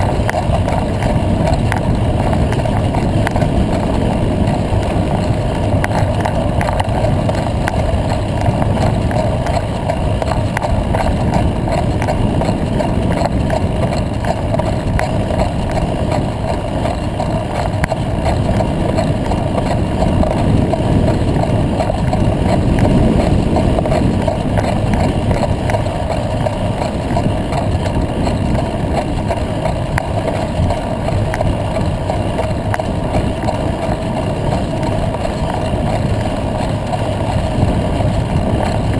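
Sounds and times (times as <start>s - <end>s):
tyres rolling on dirt track: 0.0s - 38.9s
wind rumble: 0.0s - 38.9s
faint clicks: 0.2s - 3.4s, 4.5s - 12.5s.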